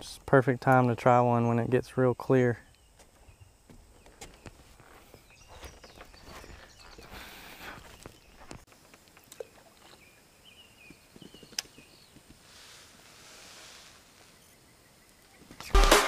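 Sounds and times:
soft hiss: 0:06.7 - 0:15.7
sharp click: 0:15.6 - 0:16.0.

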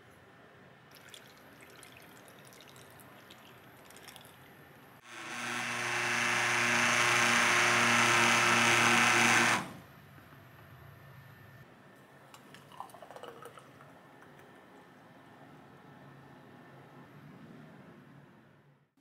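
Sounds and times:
juice pouring into a glass: 0:00.9 - 0:04.4, 0:12.5 - 0:14.0
stick blender motor whine: 0:05.0 - 0:09.8.

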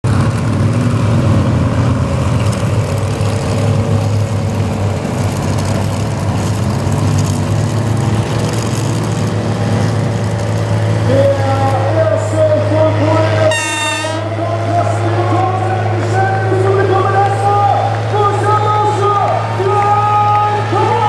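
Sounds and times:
low motor hum: 0:00.0 - 0:21.0.

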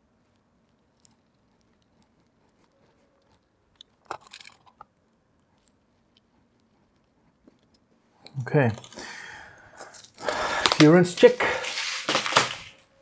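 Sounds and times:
rustling: 0:09.8 - 0:12.9.

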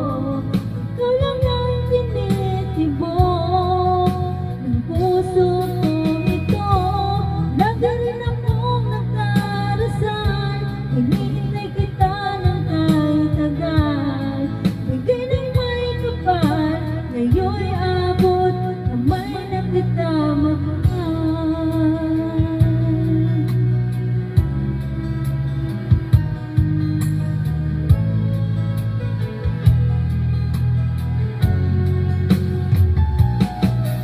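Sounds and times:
woman singing a slow ballad: 0:00.0 - 0:24.8.

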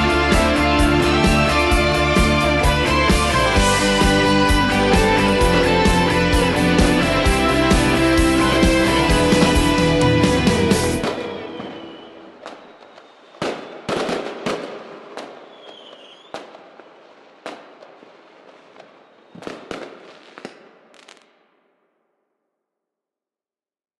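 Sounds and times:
fireworks crackling: 0:00.0 - 0:21.7
firework whistle: 0:03.1 - 0:16.9, 0:18.4 - 0:21.3
fireworks bangs: 0:07.7 - 0:21.8.

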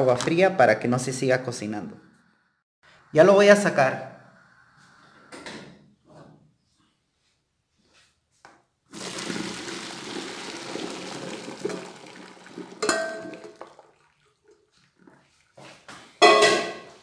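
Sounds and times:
water pouring into a colander: 0:08.9 - 0:15.9.

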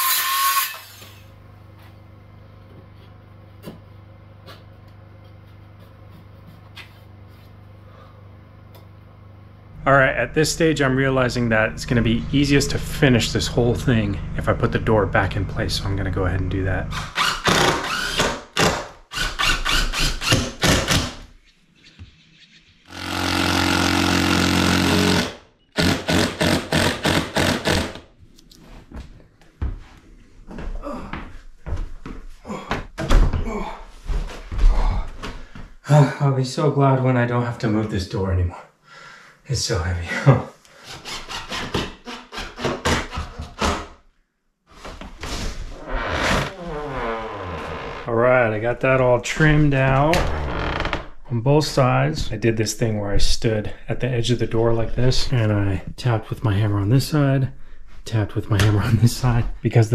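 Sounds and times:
impact driver hammering: 0:20.0 - 0:21.2, 0:22.9 - 0:28.0
impact driver motor whine: 0:22.9 - 0:28.0
hand tools scraping wood: 0:40.7 - 0:43.9.

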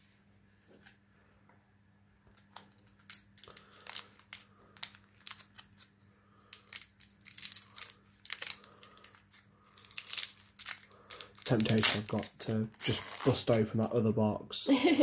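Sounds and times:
foil wrapper crinkling and tearing: 0:02.3 - 0:05.9, 0:06.5 - 0:13.8.

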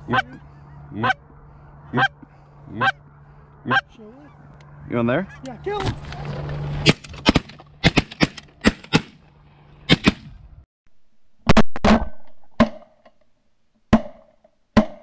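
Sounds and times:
shotgun shots: 0:06.8 - 0:09.2, 0:09.9 - 0:10.3.

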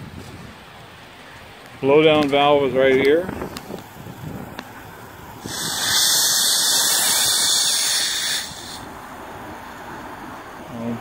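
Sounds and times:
steam hissing from valve: 0:05.4 - 0:09.0.

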